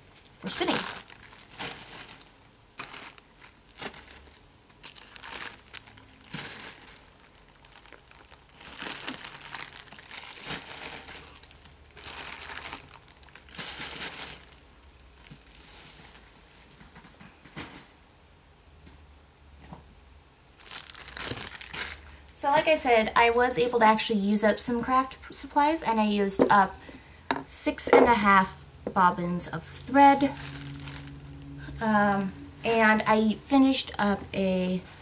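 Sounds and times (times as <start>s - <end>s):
packaging crinkling and rustling: 0.0s - 18.0s, 20.5s - 22.8s, 30.2s - 31.5s.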